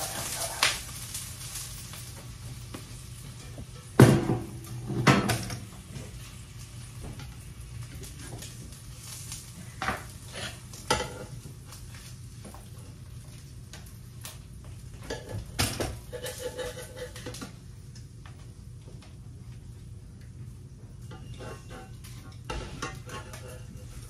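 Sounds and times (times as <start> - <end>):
dishes and cutlery clattering: 9.8 - 11.4, 15.0 - 17.5, 21.1 - 24.0.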